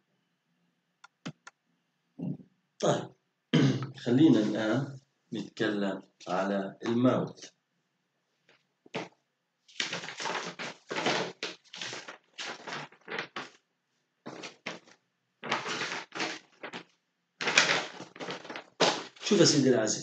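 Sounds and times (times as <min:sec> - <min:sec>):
paper rustling and scraping: 0:09.7 - 0:13.6, 0:14.3 - 0:19.6.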